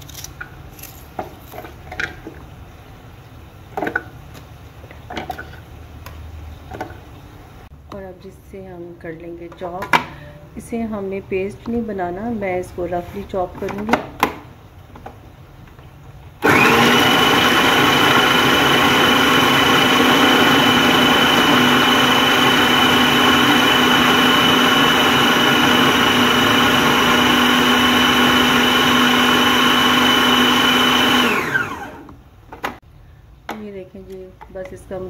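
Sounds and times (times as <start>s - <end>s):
food processor motor whining: 16.4s - 32.2s.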